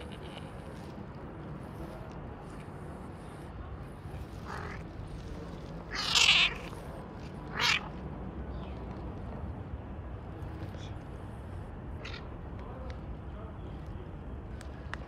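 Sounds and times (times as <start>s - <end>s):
cat meowing: 4.4s - 4.8s, 5.9s - 6.8s, 7.5s - 7.9s.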